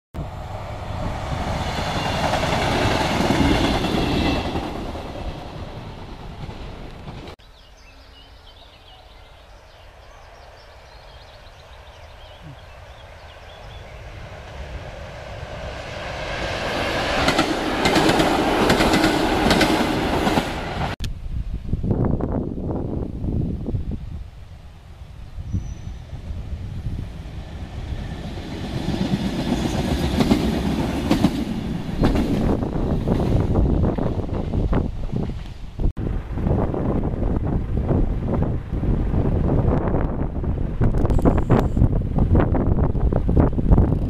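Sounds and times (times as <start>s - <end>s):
train rushing past: 0.2s - 7.4s, 8.8s - 21.0s, 24.4s - 43.4s
train wheels clacking over rail joints: 17.1s - 20.6s.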